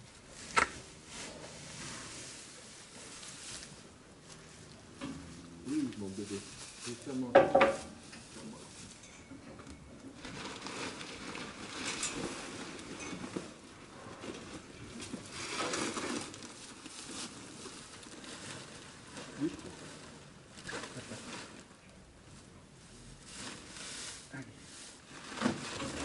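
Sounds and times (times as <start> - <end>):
sacks and straw rustling: 0.0 - 9.3, 10.0 - 26.0
footsteps in straw: 0.2 - 9.1, 22.9 - 25.2.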